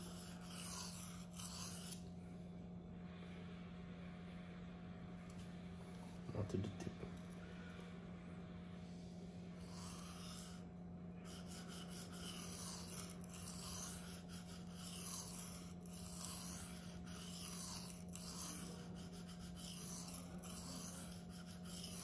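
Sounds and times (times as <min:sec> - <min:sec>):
knife rasping on sharpening stone: 0:00.0 - 0:02.0, 0:09.6 - 0:10.6, 0:11.2 - 0:22.0.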